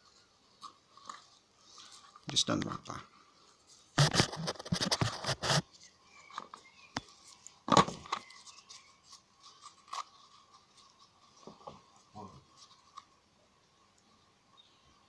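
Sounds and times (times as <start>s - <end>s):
paper crinkling and scraping: 3.7s - 13.1s.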